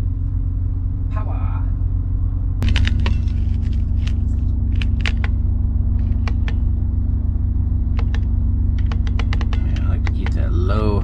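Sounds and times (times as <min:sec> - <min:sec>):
loud low rumble: 0:00.0 - 0:11.0
control panel button clicks: 0:07.9 - 0:10.2.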